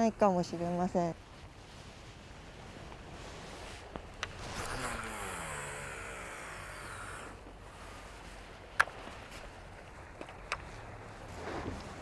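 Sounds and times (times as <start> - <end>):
motor passing by: 4.3 - 7.5.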